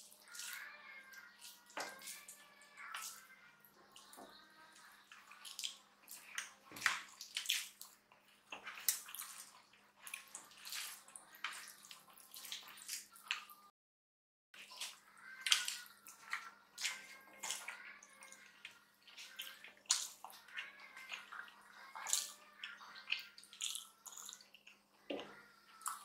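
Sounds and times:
chewing and smacking: 0.0 - 13.7, 14.6 - 26.0.

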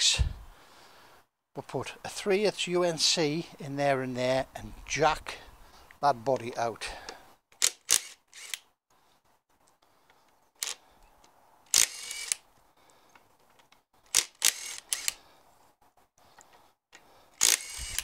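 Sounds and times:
impact wrench bursts: 7.6 - 8.6, 11.7 - 12.4, 14.1 - 15.2, 17.4 - 18.0.

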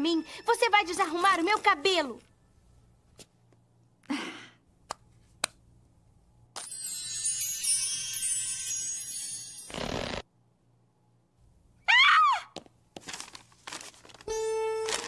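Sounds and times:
glittering chime-like shimmer: 6.6 - 10.2.

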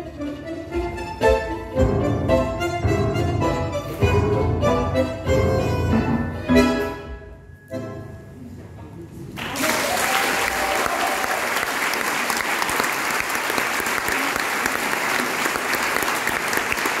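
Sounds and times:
audience applauding: 9.4 - 17.0.

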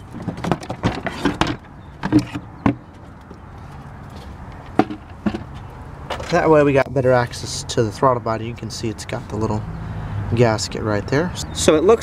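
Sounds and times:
plastic cover knocking: 4.8 - 5.5.

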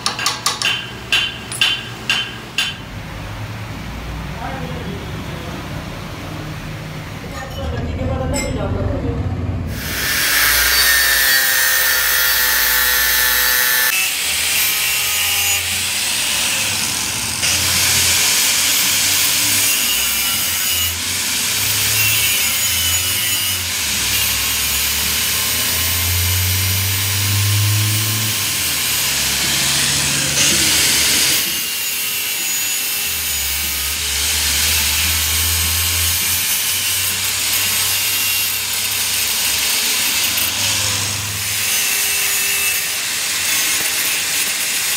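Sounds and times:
angle grinder grinding steel: 9.7 - 44.9.

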